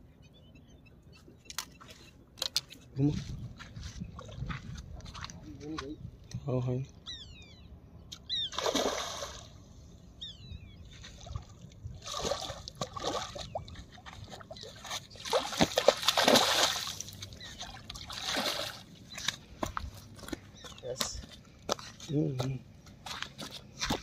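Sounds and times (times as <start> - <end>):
fish splashing in water: 8.5 - 9.5, 11.2 - 19.4.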